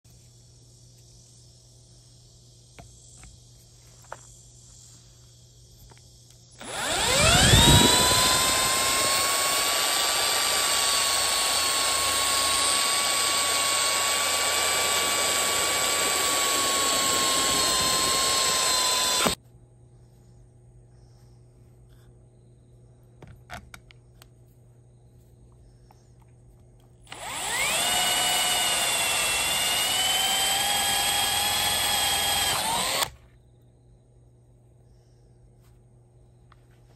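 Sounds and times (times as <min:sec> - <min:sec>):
electric drill whining: 0:06.6 - 0:19.4, 0:27.1 - 0:33.2.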